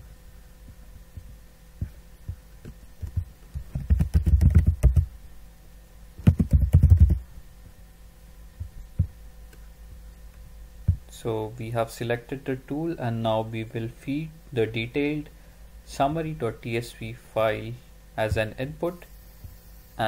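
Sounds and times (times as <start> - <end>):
typing on computer keyboard: 3.7 - 5.1.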